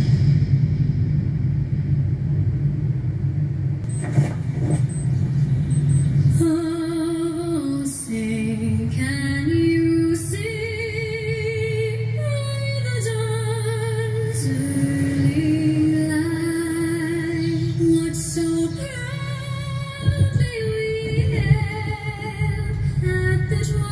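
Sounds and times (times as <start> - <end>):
steady low rumble: 0.0 - 23.9
woman singing with vibrato: 6.3 - 23.9.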